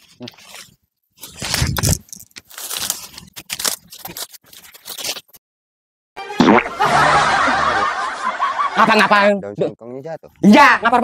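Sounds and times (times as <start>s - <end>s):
rustling of leafy plants: 0.0s - 5.4s.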